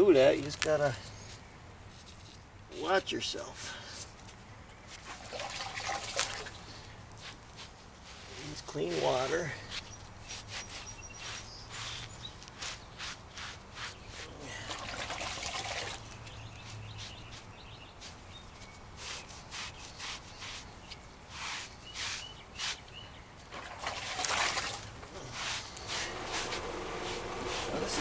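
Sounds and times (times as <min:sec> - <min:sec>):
wet sponge scrubbing stone: 0:07.2 - 0:09.6, 0:10.2 - 0:16.1, 0:19.0 - 0:20.7, 0:21.3 - 0:22.8, 0:23.8 - 0:28.0.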